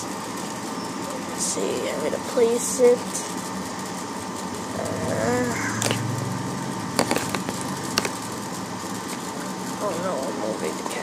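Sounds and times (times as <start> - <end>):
steady low hum: 0.0 - 11.0
plastic parts clicking: 7.0 - 8.2.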